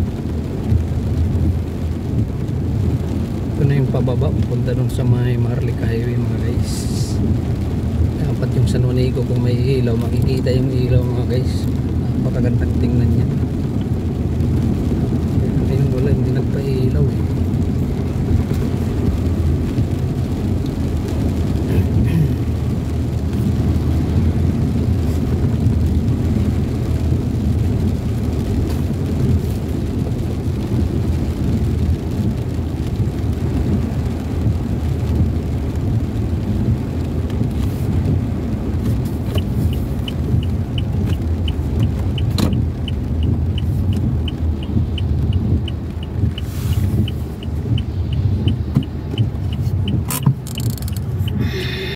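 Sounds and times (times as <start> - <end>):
vehicle engine and tyres rumbling: 0.0 - 51.9
light regular ticking: 22.5 - 51.6.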